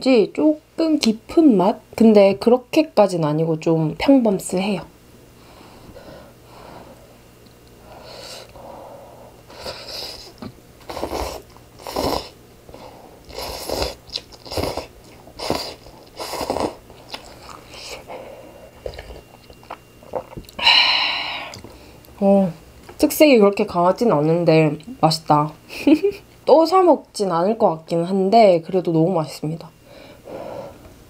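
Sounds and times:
noodles being slurped: 9.9 - 12.4, 13.3 - 17.8.

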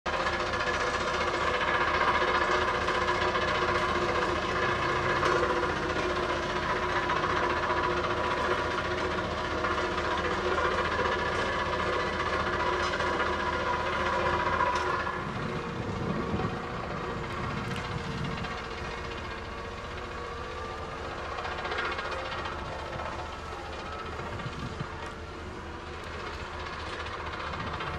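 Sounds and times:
diesel engine running: 0.1 - 27.9
roller driving over gravel: 19.6 - 27.9.

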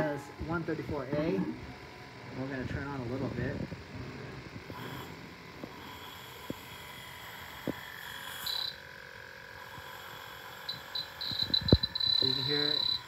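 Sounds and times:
faint steady hum: 0.0 - 13.0
leak detector beeping: 6.5 - 13.0.

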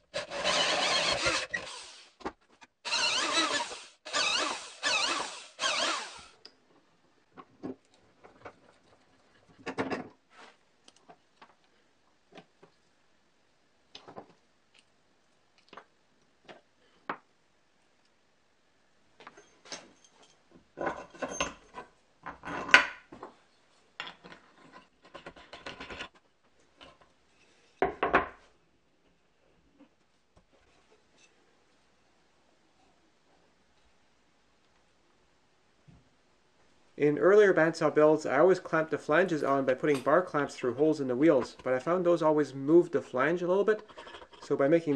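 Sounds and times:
wood rubbing: 0.1 - 2.0, 2.8 - 6.3.

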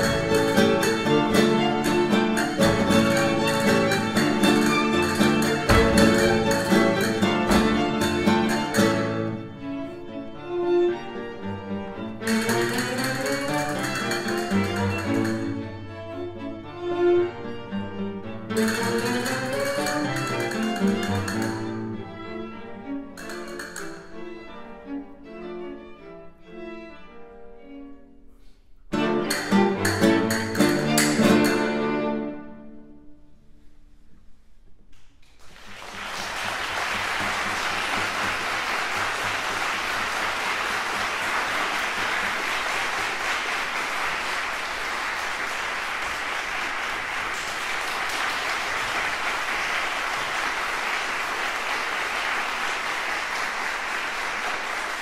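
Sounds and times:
classical guitar and string quartet: 0.0 - 33.6, 36.1 - 49.5
audience applauding: 35.2 - 55.0.

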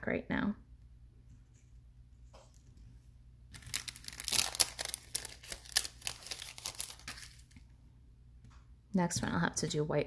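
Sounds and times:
plastic crinkling: 3.5 - 7.7.

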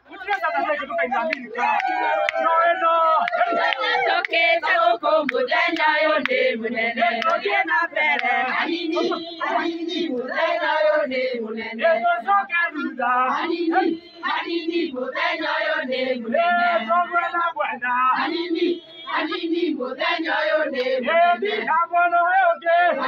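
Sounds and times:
women singing chant-like song: 0.3 - 23.0.

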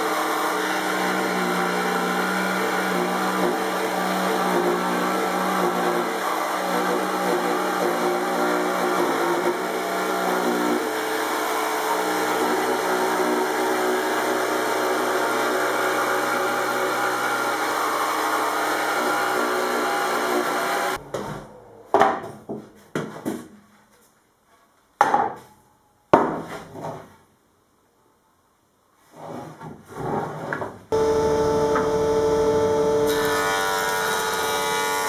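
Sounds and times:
electric jigsaw cutting wood: 0.0 - 21.0, 31.0 - 35.0.

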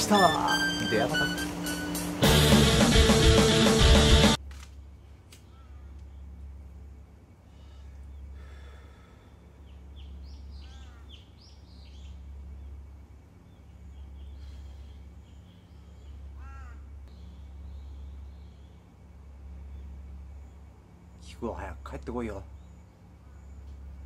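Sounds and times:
steady low rumble: 0.7 - 24.0
small birds chirping: 4.8 - 24.0
crow cawing: 5.4 - 6.1, 10.5 - 11.3, 16.0 - 17.0.

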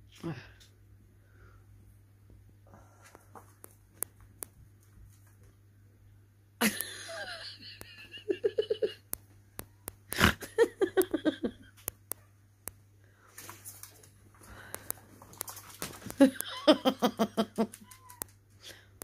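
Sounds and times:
person laughing: 6.6 - 9.1, 10.1 - 11.7, 16.1 - 18.0
sharp clicks: 11.8 - 12.8.

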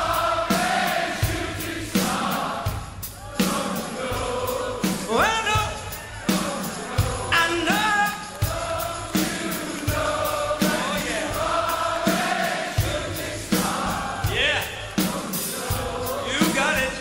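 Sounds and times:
steady drum beat: 0.0 - 17.0
sung vocals with harmonies: 0.0 - 17.0.

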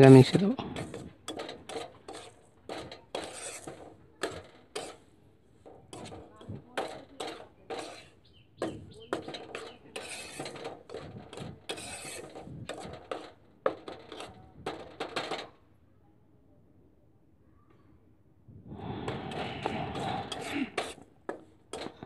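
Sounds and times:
metal spatula scraping frying pan: 0.0 - 15.5, 18.8 - 22.0.

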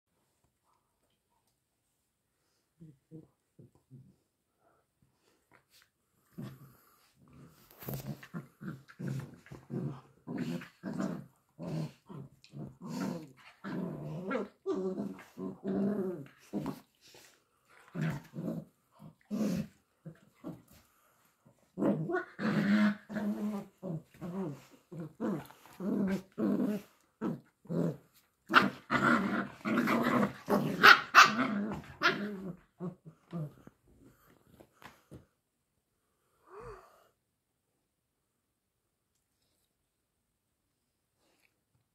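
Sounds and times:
dogs play-growling: 5.2 - 34.9.

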